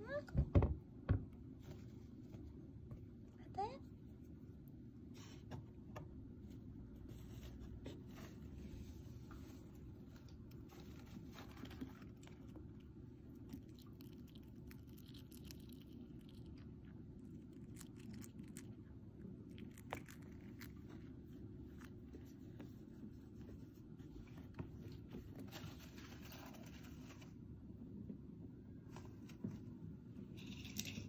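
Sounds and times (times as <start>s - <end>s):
low background hum: 0.0s - 31.0s
hamster nibbling crunchy food: 9.4s - 22.8s.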